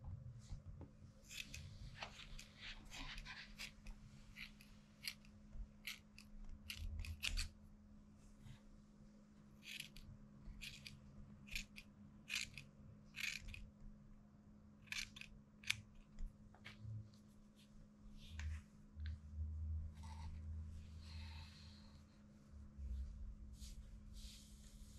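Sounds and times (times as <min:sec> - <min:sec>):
soft low rumble: 0:00.0 - 0:02.0, 0:16.2 - 0:24.9
scissors snipping hair: 0:01.3 - 0:07.5, 0:09.6 - 0:10.0, 0:10.6 - 0:13.7, 0:14.8 - 0:16.1.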